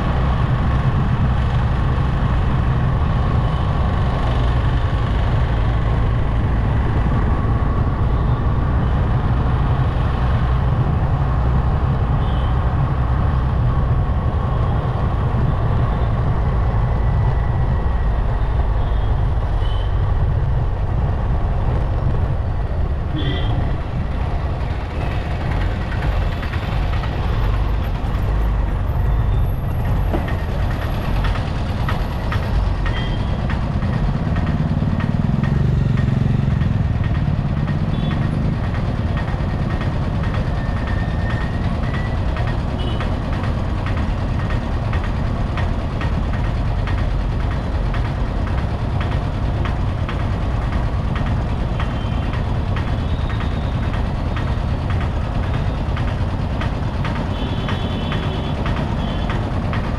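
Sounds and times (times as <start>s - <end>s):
city traffic engines: 0.0s - 59.9s
heavy vehicle low engine: 0.0s - 59.9s.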